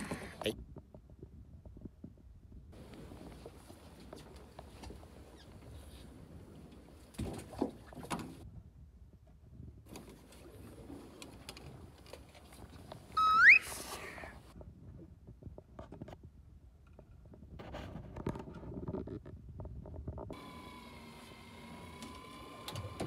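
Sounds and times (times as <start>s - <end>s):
sharp rising squeak: 13.2s - 13.9s.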